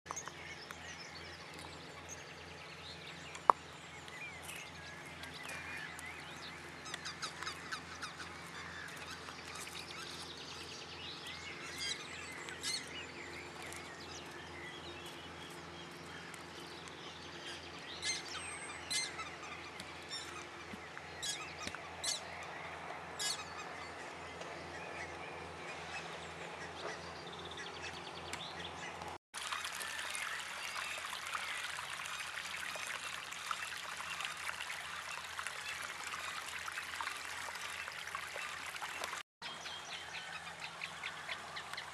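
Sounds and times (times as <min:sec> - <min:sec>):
wild birds calling: 0:00.2 - 0:32.4.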